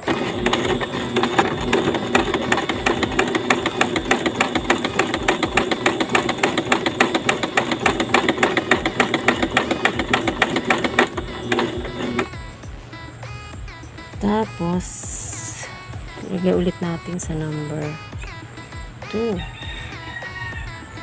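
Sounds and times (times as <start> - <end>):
electric sewing machine stitching: 0.0 - 12.5.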